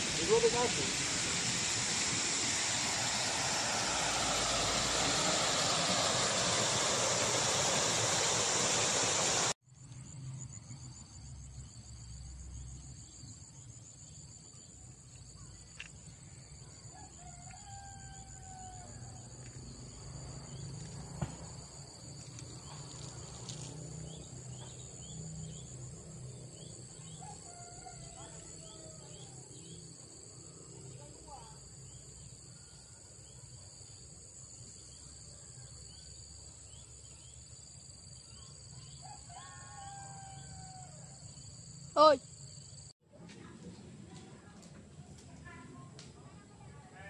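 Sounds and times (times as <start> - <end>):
loud steady rushing noise: 0.0 - 9.6
high insect drone: 0.0 - 42.9
rooster crowing: 2.7 - 8.5, 16.8 - 19.3, 27.1 - 29.4, 39.0 - 41.2.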